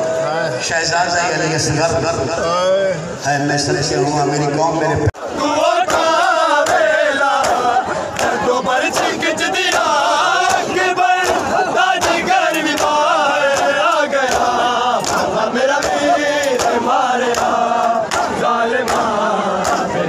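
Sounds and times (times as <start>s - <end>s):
crowd of men chanting: 5.2s - 20.0s
hands slapping chests: 7.4s - 19.9s.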